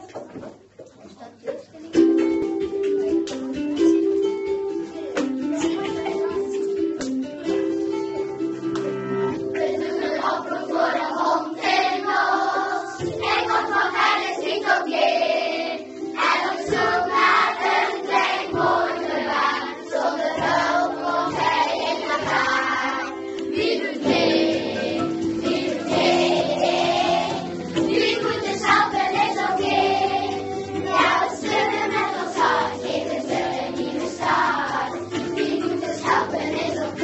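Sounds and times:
plucked string accompaniment: 1.8s - 37.0s
children singing in chorus: 9.3s - 37.0s.

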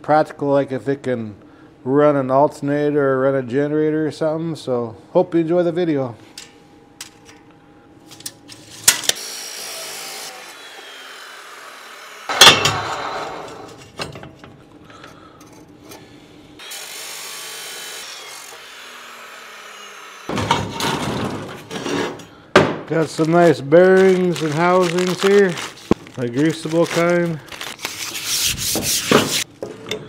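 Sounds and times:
chop saw cutting steel: 8.8s - 13.8s, 16.6s - 20.8s.

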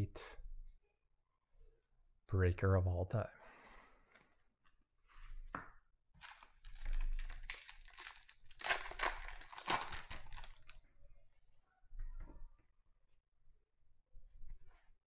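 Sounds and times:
foil wrapper tearing and crinkling: 6.2s - 10.8s.

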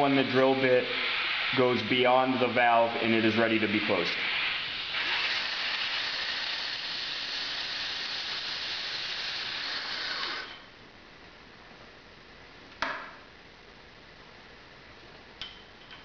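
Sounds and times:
compressed air hissing: 0.0s - 10.7s.

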